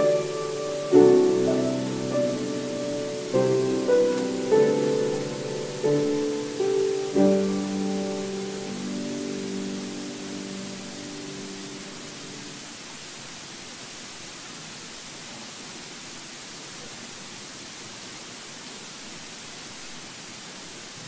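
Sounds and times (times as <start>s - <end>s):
held piano chord: 0.0s - 12.6s
steady hiss: 0.0s - 21.0s.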